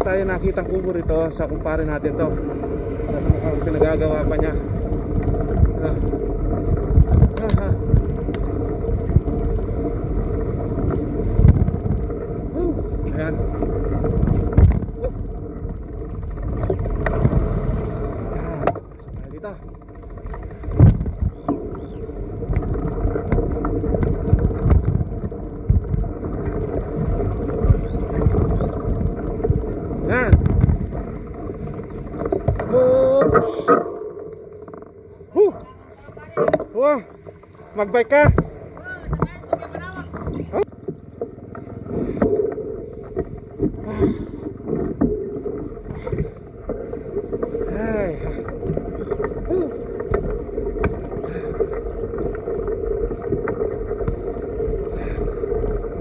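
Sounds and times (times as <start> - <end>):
wind on microphone: 0.0 - 19.6, 20.5 - 34.6
bicycle rumbling over ground: 0.0 - 56.0.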